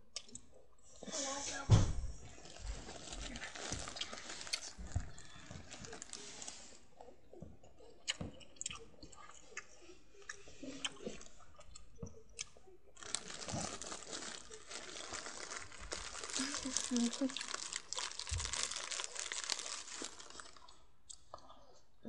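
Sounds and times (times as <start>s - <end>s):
person chewing a snack: 0.1s - 0.6s, 2.4s - 21.9s
rustling: 2.2s - 6.9s, 13.0s - 20.7s.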